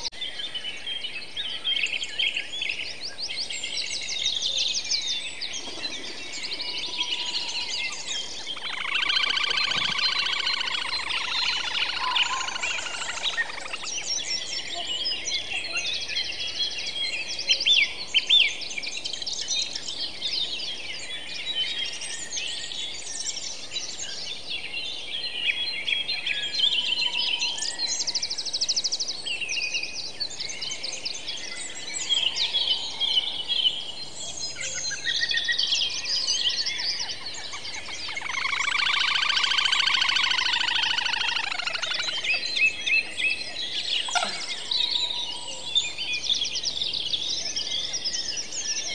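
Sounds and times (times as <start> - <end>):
many birds singing: 0.0 - 48.9.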